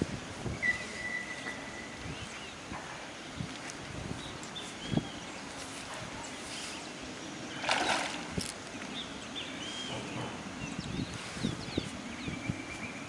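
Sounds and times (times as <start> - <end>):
birds chirping: 0.6 - 13.0
fish splashing: 7.5 - 8.6.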